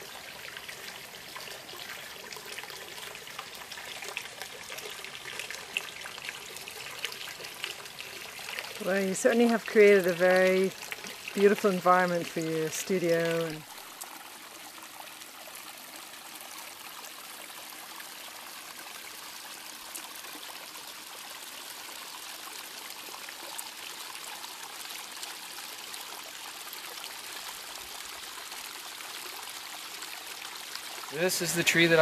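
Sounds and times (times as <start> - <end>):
running water rushing: 0.0 - 32.0.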